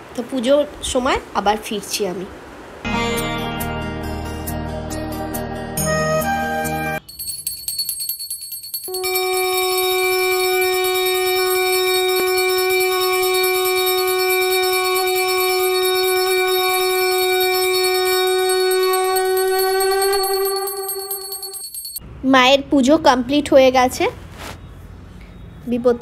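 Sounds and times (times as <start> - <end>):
rapid high ringing: 7.0 - 22.0
conch shell blown: 8.9 - 21.6.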